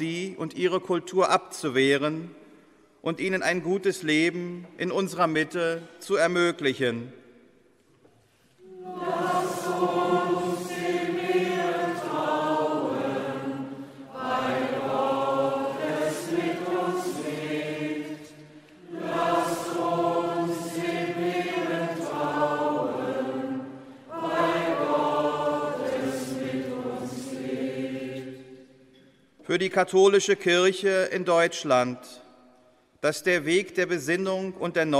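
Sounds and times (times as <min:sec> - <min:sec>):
choir chanting: 0:08.6 - 0:28.9.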